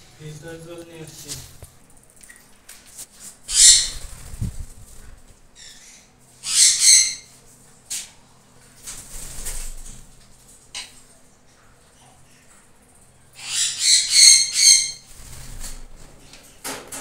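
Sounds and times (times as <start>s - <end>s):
parrots screeching: 3.5s - 4.2s, 5.6s - 7.3s, 13.4s - 15.1s.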